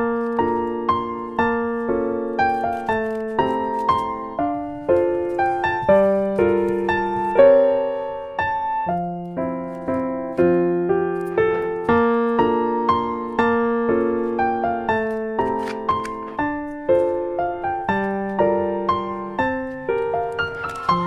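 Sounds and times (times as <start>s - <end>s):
piano music: 0.0s - 21.0s.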